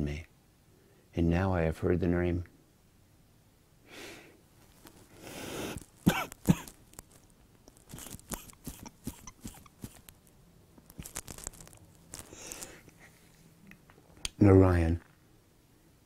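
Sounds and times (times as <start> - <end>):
shaky breath: 5.1 - 6.0, 7.9 - 9.6, 12.2 - 13.2
sniffles: 7.9 - 10.0
sharp catches of breath: 12.3 - 12.9.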